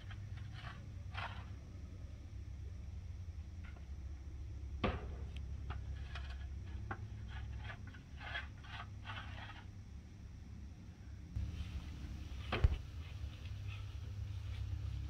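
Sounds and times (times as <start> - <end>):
steady low rumble: 11.4 - 15.0.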